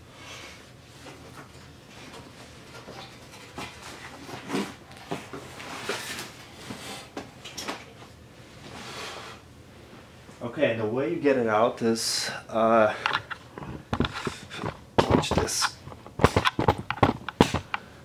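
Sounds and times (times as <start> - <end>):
seat knocking and rustling on floor: 13.6 - 17.7.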